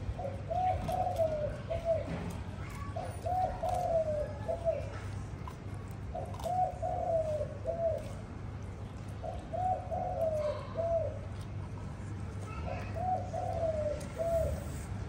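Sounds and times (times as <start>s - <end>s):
dove cooing: 0.0s - 5.2s, 6.1s - 8.2s, 9.2s - 11.5s, 12.6s - 14.9s.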